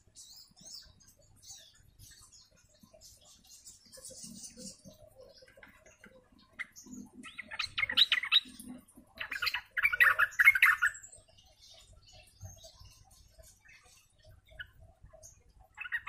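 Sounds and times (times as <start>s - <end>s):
bird chattering song: 0.0s - 16.0s.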